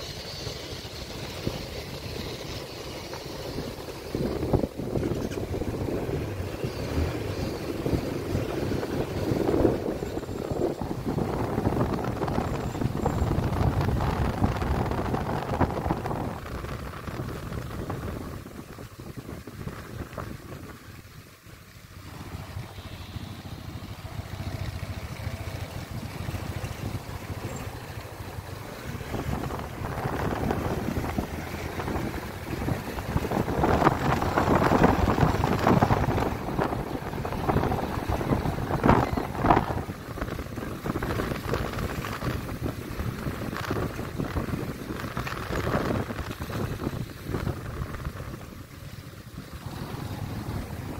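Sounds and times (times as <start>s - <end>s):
road noise: 0.0s - 50.9s
wind rushing over microphone: 0.7s - 21.2s, 25.3s - 50.9s
motorbike engine running: 21.9s - 50.9s.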